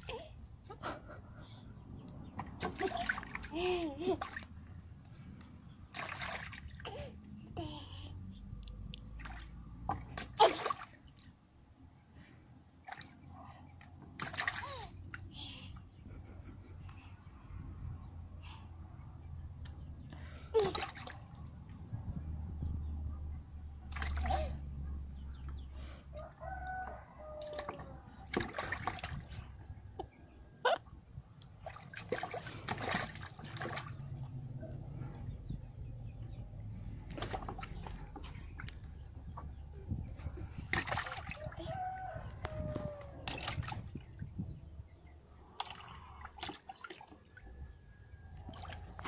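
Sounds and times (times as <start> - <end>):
hands splashing water in basin: 2.3 - 3.5, 5.9 - 6.8, 9.0 - 11.4, 12.8 - 14.9, 20.6 - 21.5, 23.8 - 24.5, 27.4 - 29.5, 31.5 - 34.2, 37.0 - 39.0, 40.6 - 41.6, 42.5 - 44.2, 45.6 - 47.4, 48.4 - 49.0
rooster crowing: 26.1 - 28.0, 41.4 - 43.2.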